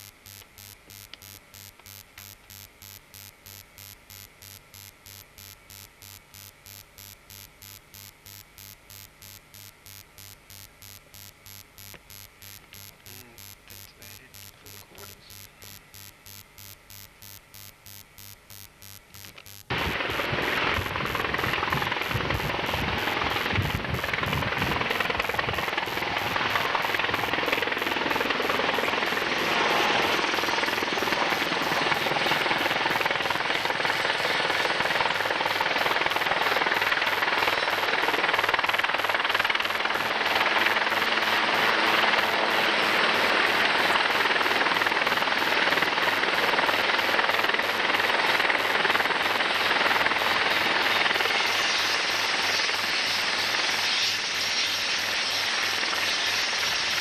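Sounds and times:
helicopter rotor and turbine noise: 0:19.7 - 0:57.0.

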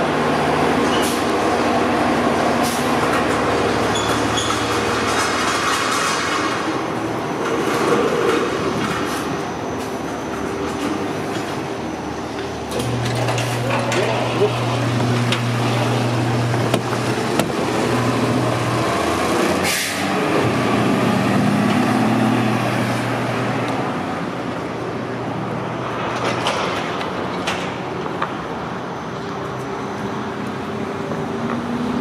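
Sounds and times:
diesel engine running: 0:00.0 - 0:32.0
air brakes hissing: 0:19.6 - 0:20.1.

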